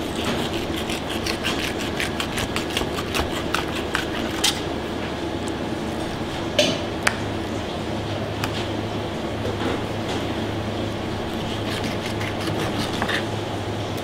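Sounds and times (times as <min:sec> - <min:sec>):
knife scraping on cutting board: 0:00.0 - 0:04.7, 0:11.3 - 0:13.3
steady hum: 0:00.0 - 0:14.0.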